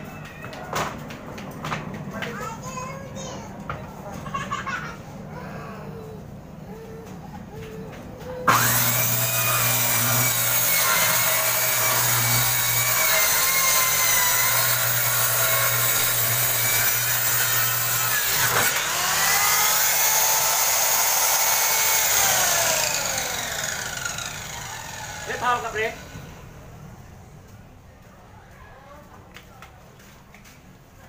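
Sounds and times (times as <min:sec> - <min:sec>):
circular saw cutting wood: 0:08.4 - 0:26.7.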